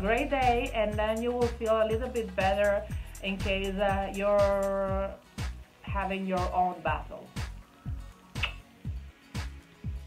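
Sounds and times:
clap-like hit: 8.4 - 8.7.

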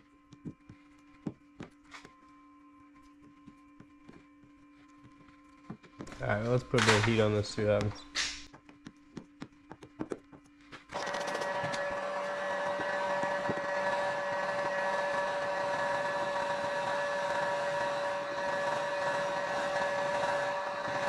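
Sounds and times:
heat gun blower hum: 10.9 - 21.0.

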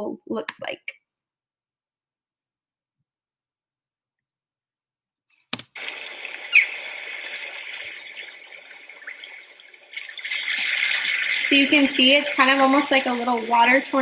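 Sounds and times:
swirling sea water rushing: 5.8 - 14.0.

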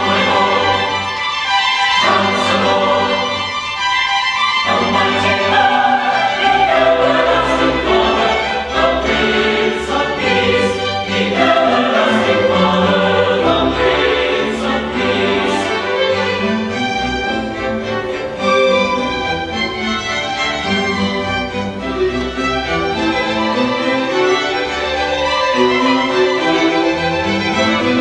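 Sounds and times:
mixed choir singing: 0.0 - 16.8
orchestra playing: 0.0 - 28.0.

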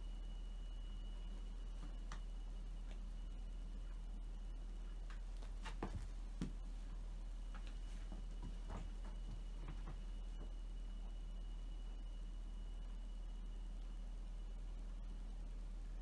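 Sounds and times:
cats' paws thumping and scuffing: 5.0 - 6.9, 7.5 - 10.6.

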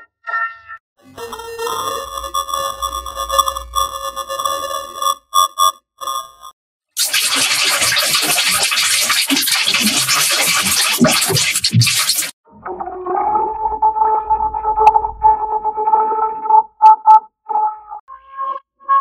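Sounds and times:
held electronic tone: 1.0 - 6.5
harsh crackling static noise: 7.0 - 12.3.

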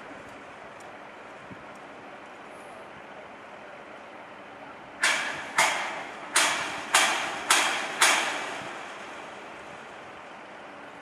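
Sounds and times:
hammer blows on steel: 5.0 - 8.8.

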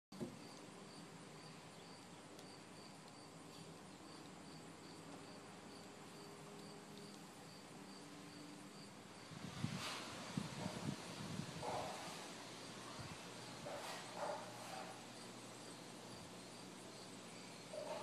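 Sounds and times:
insect chirping: 0.2 - 9.4, 13.6 - 18.0.

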